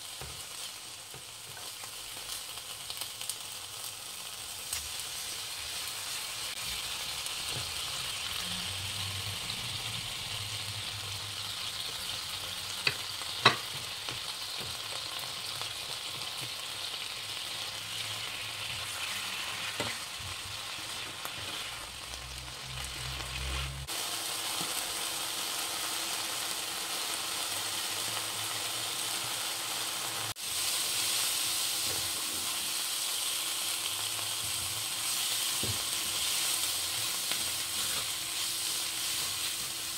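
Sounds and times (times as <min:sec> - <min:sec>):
vegetables sizzling in a frying pan: 0:00.0 - 0:39.9
spatula scraping a pan: 0:17.9 - 0:22.0, 0:35.1 - 0:39.9.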